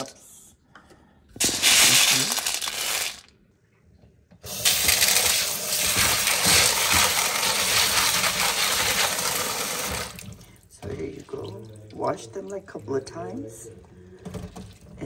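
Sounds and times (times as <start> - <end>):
dry chickpeas rattling in bowl: 1.4 - 3.3
tap water running into bowl: 4.4 - 13.1.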